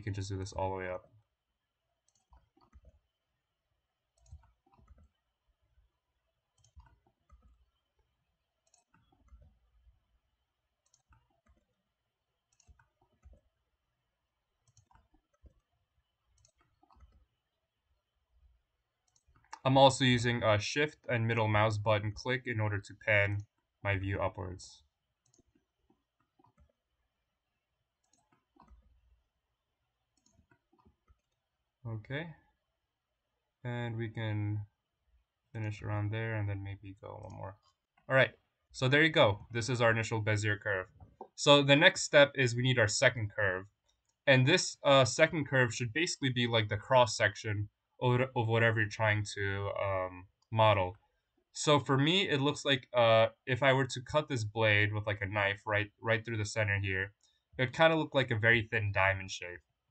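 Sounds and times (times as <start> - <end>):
computer mouse and keyboard clicks: 2.0 - 3.2, 4.1 - 5.3, 6.5 - 10.0, 10.8 - 13.6, 14.6 - 17.6, 19.0 - 19.7, 25.2 - 27.0, 28.0 - 29.2, 30.1 - 31.5, 37.2 - 42.2
mouse clicks: 8.6 - 9.5, 10.8 - 11.8, 12.4 - 13.4, 14.6 - 15.7, 16.4 - 17.2, 19.1 - 19.8, 25.2 - 25.6.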